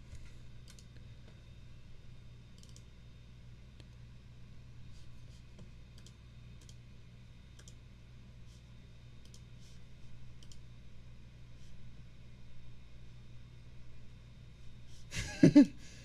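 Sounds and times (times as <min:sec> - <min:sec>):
steady low hum: 0:00.0 - 0:16.0
computer mouse clicks: 0:00.6 - 0:01.1, 0:02.5 - 0:02.9, 0:05.6 - 0:06.8, 0:07.6 - 0:07.8, 0:09.2 - 0:09.7, 0:10.4 - 0:10.7.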